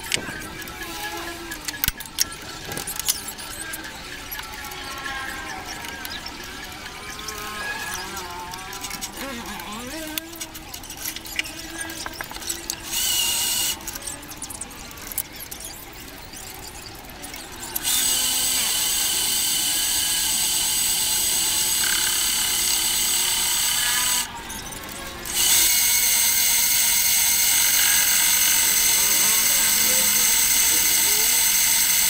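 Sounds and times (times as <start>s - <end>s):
lathe cutting metal high-pitched: 8.9s - 32.0s.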